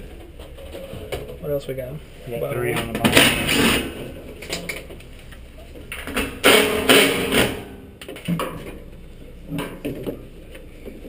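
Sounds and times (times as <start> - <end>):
sheet metal scraping and rustling: 2.6 - 4.9.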